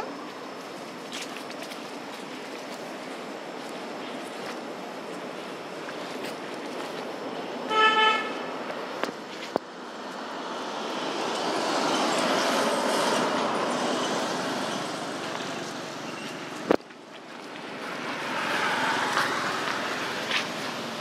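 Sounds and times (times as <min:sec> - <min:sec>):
vehicles passing by: 0:00.0 - 0:21.0.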